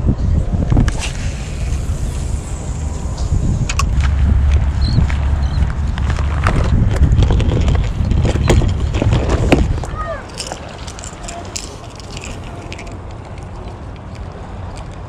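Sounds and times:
wind buffeting microphone: 0.0 - 15.0
fishing gear handling clicks: 6.5 - 15.0.

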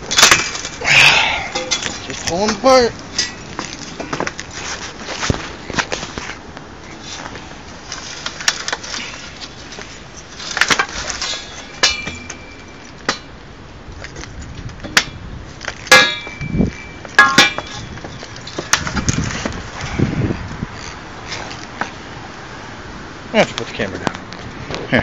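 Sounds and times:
metal bar clinking: 1.4 - 3.8, 8.4 - 13.3, 15.8 - 19.0.

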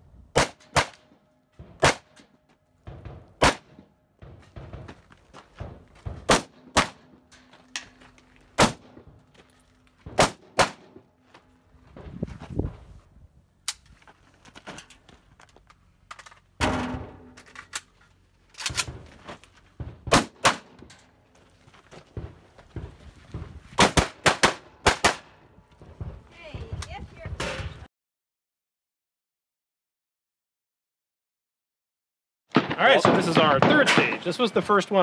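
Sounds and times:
rifle shots: 0.4 - 1.1, 1.8 - 2.2, 3.4 - 3.9, 6.2 - 7.1, 8.6 - 9.0, 10.1 - 11.0, 20.1 - 20.8, 23.8 - 25.3.

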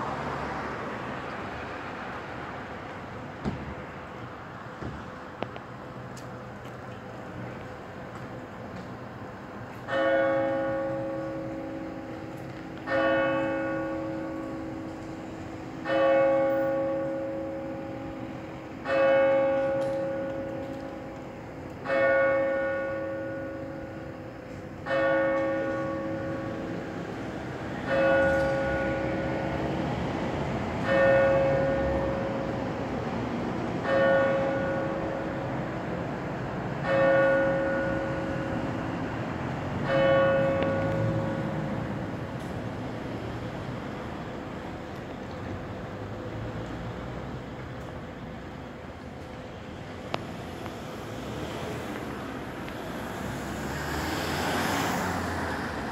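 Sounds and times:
church bell striking: 9.8 - 26.8, 27.8 - 29.6, 30.8 - 32.6, 33.8 - 35.5, 36.8 - 38.7, 39.8 - 41.6.

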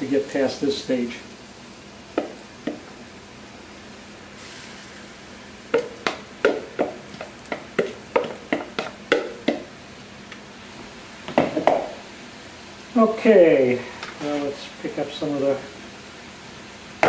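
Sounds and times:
onions sizzling in pan: 0.0 - 17.0
wooden spoon knocking on bowl: 2.2 - 2.8, 5.7 - 9.7, 11.3 - 11.9.

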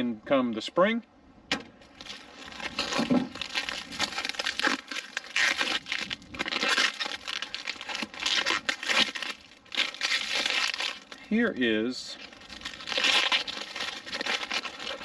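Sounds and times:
packing wrap crinkling: 1.8 - 15.0.

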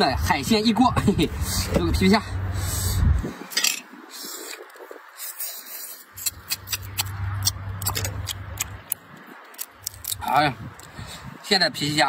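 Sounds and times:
shell crackling: 6.1 - 10.9.

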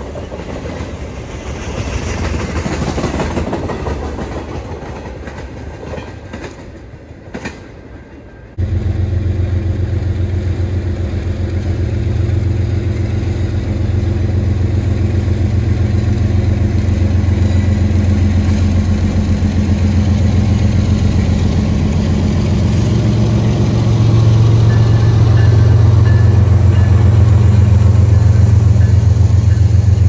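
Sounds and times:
diesel locomotive engine throb: 8.5 - 30.0.

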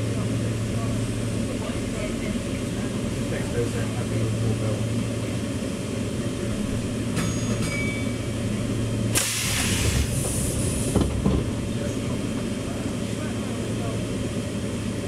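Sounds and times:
train rumble and hum: 0.0 - 15.0
sudden hiss: 9.2 - 10.4.

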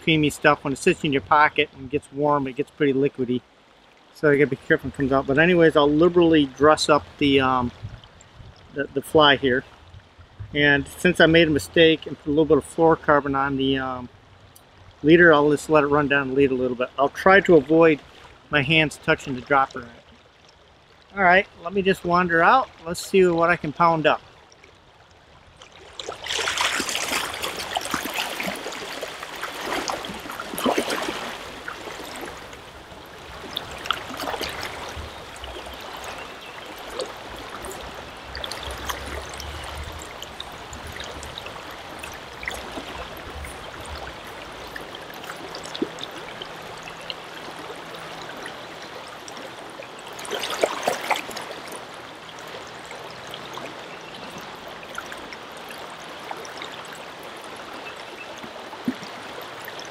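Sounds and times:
river water rushing: 0.0 - 59.9
water sloshing from wading: 22.4 - 59.9.

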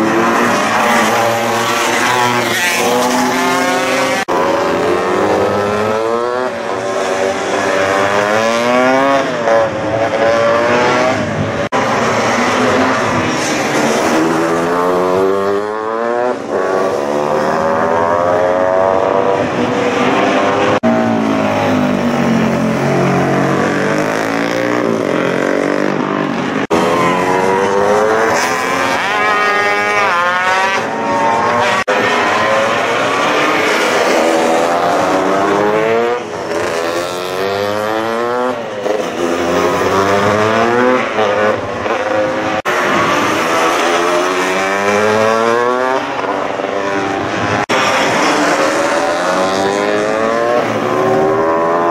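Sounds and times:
racing motorcycles revving past: 0.0 - 51.9.

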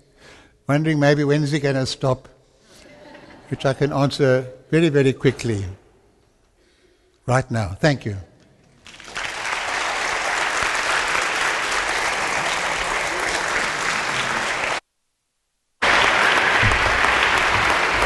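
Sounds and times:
audience applauding: 8.8 - 14.8, 15.8 - 18.0.

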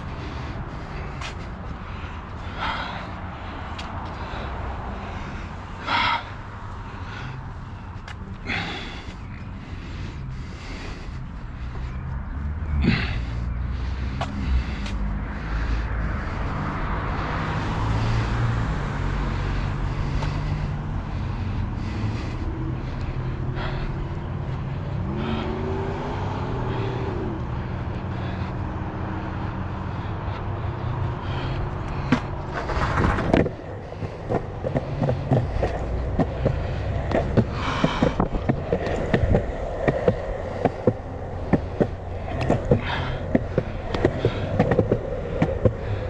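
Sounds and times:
skateboard wheels rolling on concrete: 31.1 - 46.0.

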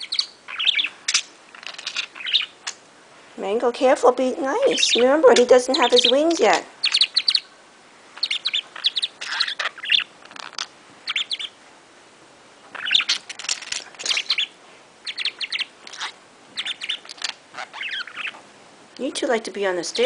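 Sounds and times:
budgerigar chirping and warbling: 0.0 - 2.8, 4.6 - 7.5, 8.2 - 11.6, 12.7 - 18.4.

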